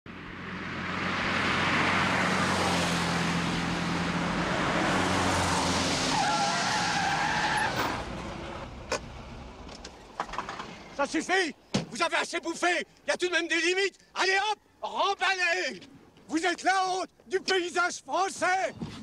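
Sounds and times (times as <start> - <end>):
car engine and tyre noise: 0.1 - 11.0.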